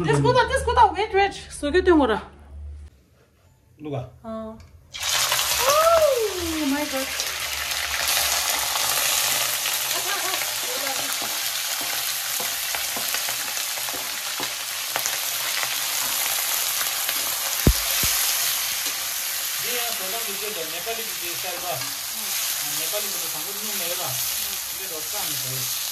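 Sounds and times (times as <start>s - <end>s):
meat sizzling in oil: 4.9s - 25.9s
sharp knock: 17.6s - 18.2s.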